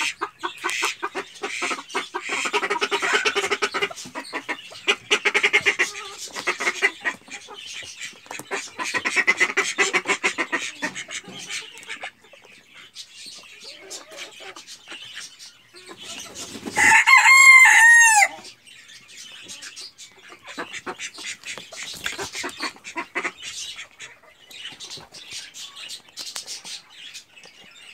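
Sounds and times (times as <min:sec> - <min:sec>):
chickens clucking: 0:00.0 - 0:27.9
rooster crowing: 0:16.8 - 0:18.4.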